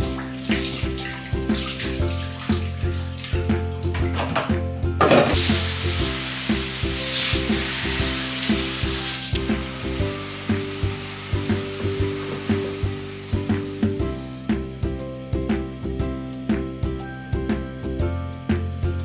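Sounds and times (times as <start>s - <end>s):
background music with a beat: 0.0s - 19.0s
food sizzling in a frying pan: 5.4s - 14.0s.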